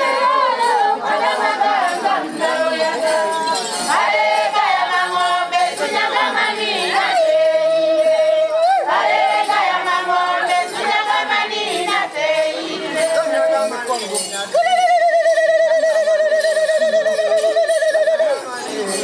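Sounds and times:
group singing together: 0.0s - 13.8s.

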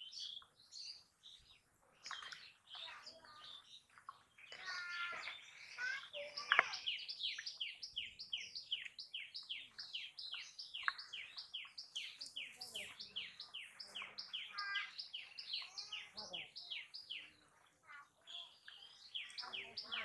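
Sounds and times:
small bird calling: 0.0s - 20.0s.

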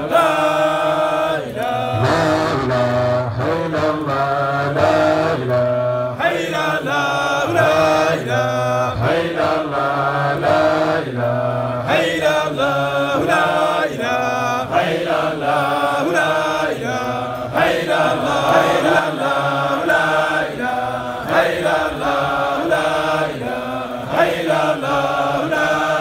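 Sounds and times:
man chanting through microphone: 0.0s - 26.0s.

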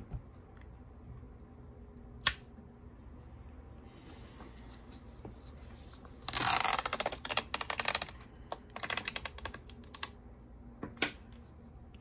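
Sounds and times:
adhesive strip peeling crackle: 6.3s - 10.1s.

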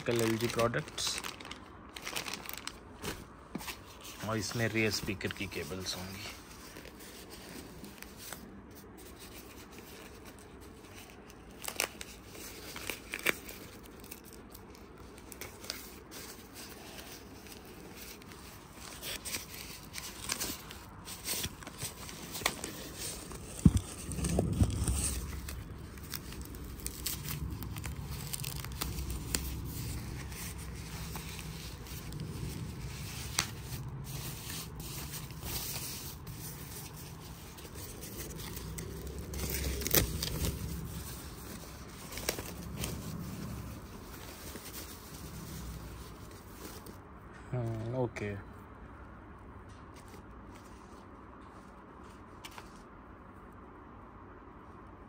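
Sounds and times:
packaging tearing and crinkling: 0.0s - 3.2s, 9.5s - 46.9s
low rumble: 22.7s - 47.0s.

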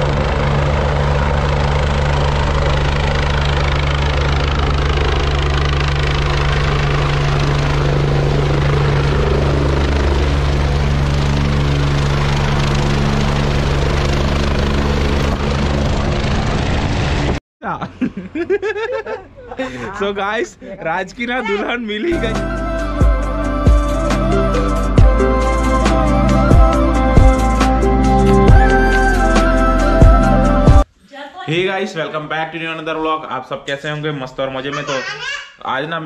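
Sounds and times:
helicopter rotor and engine: 0.0s - 17.4s, 19.6s - 30.3s
wind blasting microphone: 13.8s - 17.4s.

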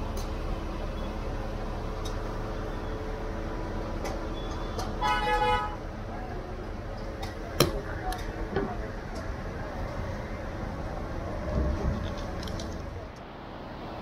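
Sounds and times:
street traffic rumbling: 0.0s - 14.0s
vehicle horn honking: 5.0s - 5.8s.

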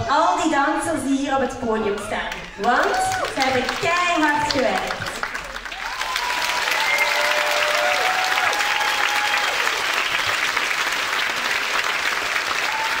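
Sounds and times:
large audience clapping: 2.0s - 13.0s
cheering shouts: 2.5s - 3.7s, 5.7s - 10.0s, 12.5s - 13.0s.

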